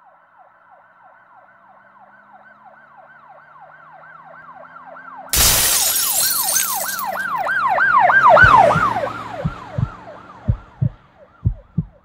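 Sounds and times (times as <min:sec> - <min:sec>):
glass shattering crash: 0:05.3 - 0:07.4
siren in fast yelp: 0:07.4 - 0:10.7.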